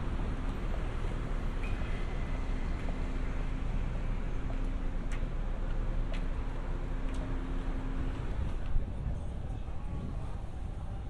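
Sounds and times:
traffic rumble: 0:00.0 - 0:11.0
wind buffeting microphone: 0:08.1 - 0:11.0.

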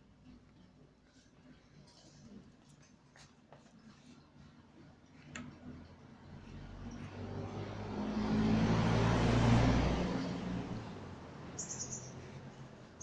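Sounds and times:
vehicle driving past: 0:05.6 - 0:13.0.

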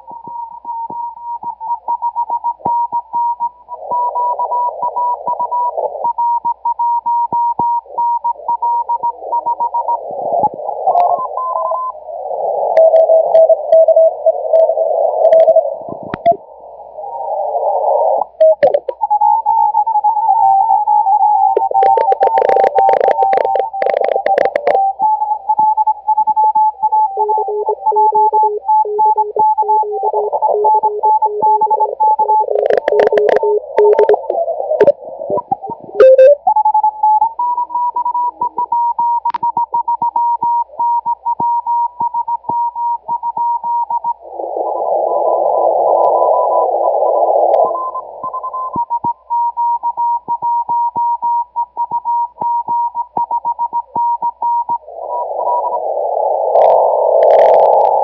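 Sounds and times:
rushing radio noise: 0:09.1 - 0:19.0, 0:21.2 - 0:24.9, 0:27.3 - 0:37.0, 0:44.0 - 0:49.0, 0:54.1 - 0:58.0
morse code beeping tones: 0:18.4 - 0:44.2, 0:47.5 - 0:55.8.

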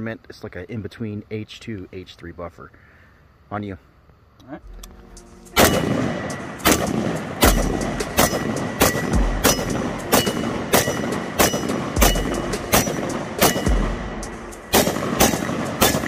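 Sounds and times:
rifle shots with echo: 0:05.5 - 0:16.0.

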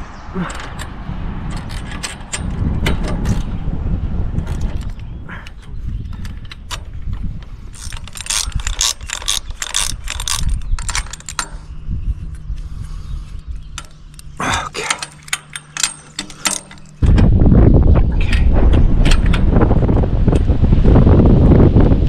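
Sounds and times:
metallic rattles of hardware: 0:00.4 - 0:03.6, 0:04.4 - 0:12.5, 0:13.5 - 0:20.5
ratchet wrench clicking: 0:07.7 - 0:11.7, 0:13.7 - 0:17.2.

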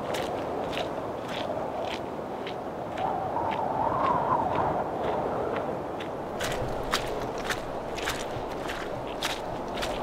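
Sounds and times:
footsteps through grass and leaves: 0:06.3 - 0:10.0.

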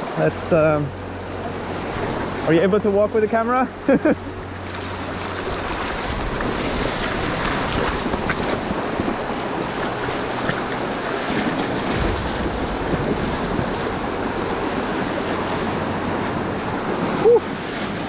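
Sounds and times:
small waves on stony shore: 0:01.6 - 0:18.0
boots splashing in shallow water: 0:03.9 - 0:18.0
wind buffeting microphone: 0:04.2 - 0:18.0.

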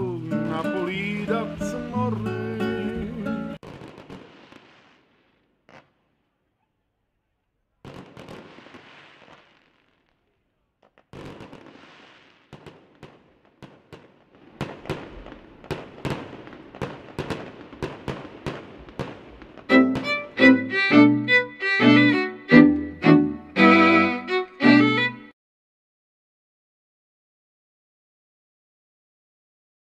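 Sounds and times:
fireworks cracks and bangs: 0:00.0 - 0:02.2, 0:03.0 - 0:06.1, 0:07.8 - 0:22.6
fireworks rushing bursts: 0:00.0 - 0:05.9, 0:07.8 - 0:10.0, 0:11.1 - 0:25.1.

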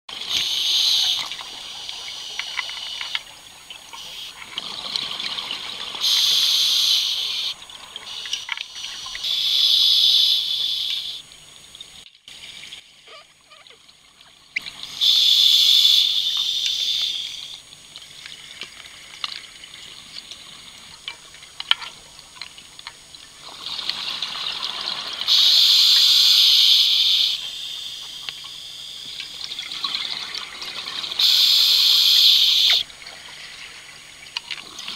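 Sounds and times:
regulator breathing noise: 0:31.2 - 0:32.8.

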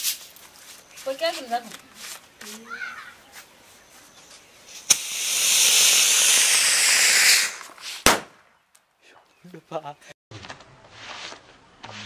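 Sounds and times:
firework fountain hissing: 0:04.7 - 0:08.2
firework igniting click: 0:04.7 - 0:08.4
sharp pop: 0:04.8 - 0:08.5.

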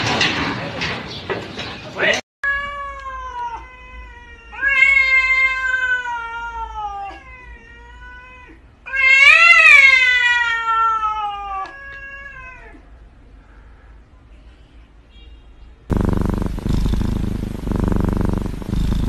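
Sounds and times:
cat yowling: 0:02.4 - 0:12.8.

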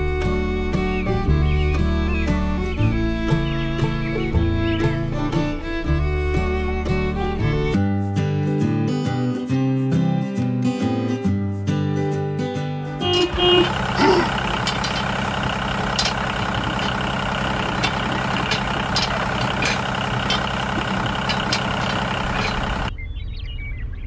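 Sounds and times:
guitar music: 0:00.0 - 0:22.8
motor running steadily: 0:13.0 - 0:22.9
small clicks and rattles: 0:13.1 - 0:22.9.

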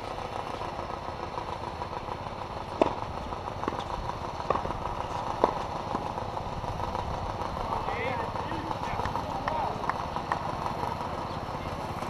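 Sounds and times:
tennis balls struck by rackets: 0:02.5 - 0:06.9, 0:08.7 - 0:11.2.

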